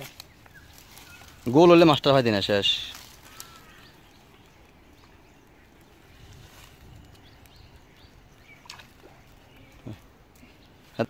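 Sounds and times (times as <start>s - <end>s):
faint animal calls: 3.0s - 4.3s.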